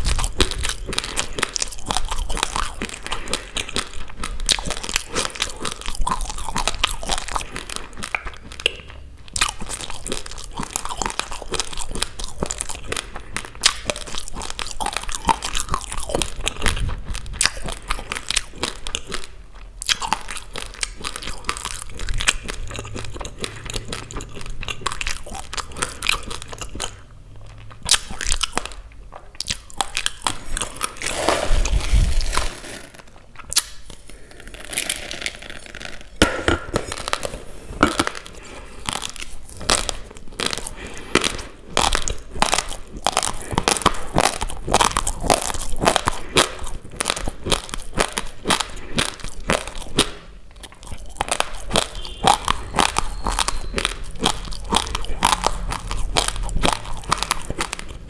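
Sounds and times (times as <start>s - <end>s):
rice grains being chewed: 0.0s - 58.0s
spoon scraping plastic bowl: 30.3s - 33.2s.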